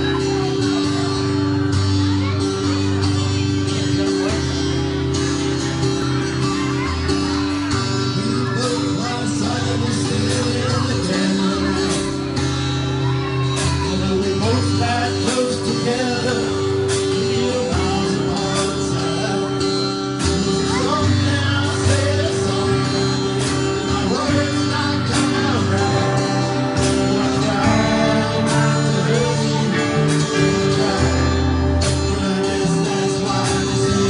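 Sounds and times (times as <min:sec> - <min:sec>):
live rock band: 0:00.0 - 0:34.0
male lead vocals: 0:00.0 - 0:34.0.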